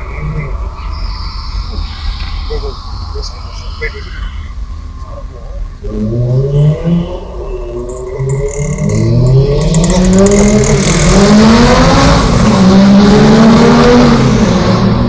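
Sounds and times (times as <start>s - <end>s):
car engine accelerating hard: 5.8s - 15.0s.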